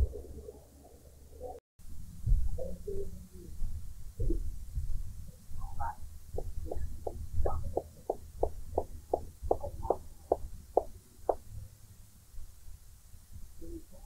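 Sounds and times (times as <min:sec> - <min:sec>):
low rumble of recording noise: 0:00.0 - 0:14.0
rapid knocks: 0:06.4 - 0:11.4.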